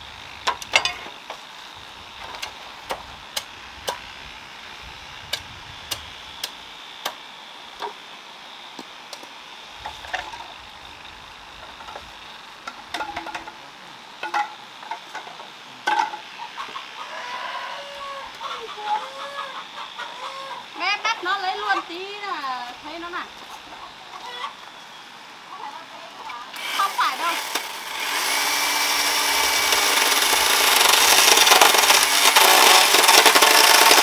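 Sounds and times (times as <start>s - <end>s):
steady high hiss: 0.0s - 31.1s
bamboo poles tapping and knocking: 12.7s - 13.6s, 14.2s - 16.2s.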